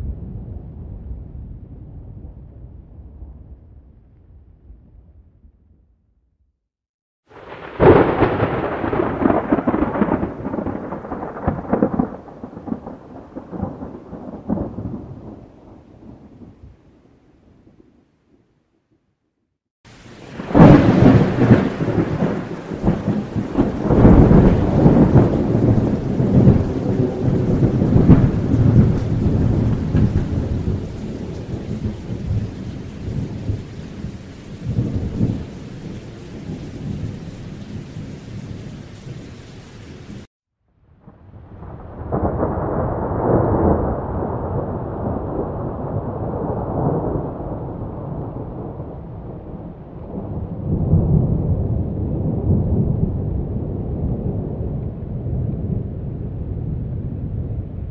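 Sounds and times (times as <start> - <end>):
thunder rolling: 0.0 - 5.8, 7.3 - 17.9, 19.9 - 40.3, 41.0 - 57.9
rain hiss: 19.9 - 40.3.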